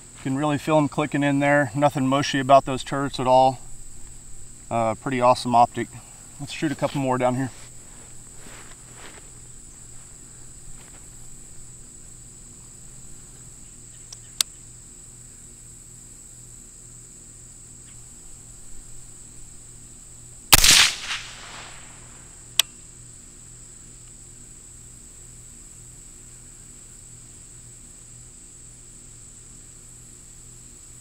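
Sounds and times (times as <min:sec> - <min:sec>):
suppressed rifle shot: 0:20.5 - 0:22.7
sharp clicks: 0:20.6 - 0:22.0.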